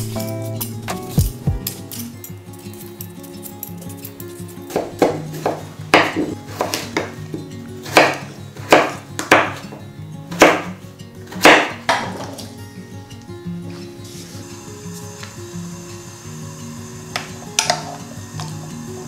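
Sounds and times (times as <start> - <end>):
knife chopping on wooden board: 4.7 - 7.2, 7.8 - 9.7, 10.4 - 10.7, 11.4 - 12.3.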